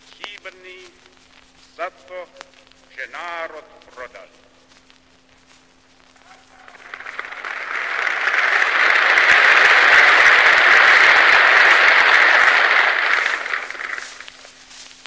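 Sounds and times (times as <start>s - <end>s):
huge crowd applauding: 6.2s - 14.6s.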